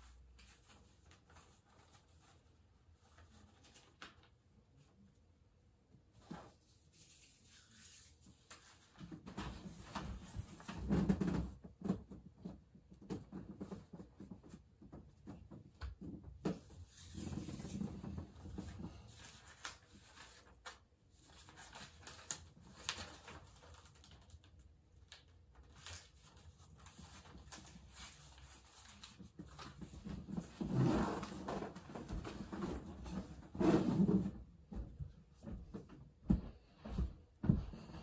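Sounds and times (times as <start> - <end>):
bedding and paper rustling: 0.0 - 5.0, 13.2 - 34.3.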